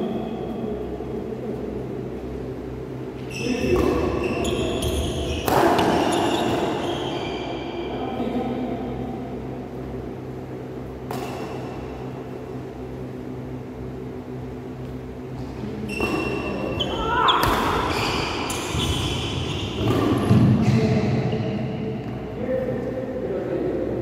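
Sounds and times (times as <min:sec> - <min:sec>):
low hum: 0:00.0 - 0:24.0
shoes squeaking on court floor: 0:03.2 - 0:07.9, 0:15.8 - 0:20.8
racket hitting shuttlecock: 0:03.6 - 0:04.2, 0:05.4 - 0:06.7, 0:10.9 - 0:12.1, 0:16.0 - 0:20.6.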